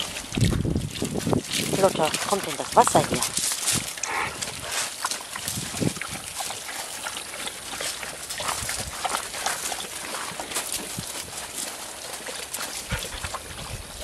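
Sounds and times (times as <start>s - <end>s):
dogs scuffing on gravel: 0.0s - 14.0s
short low dog sounds: 4.0s - 4.5s.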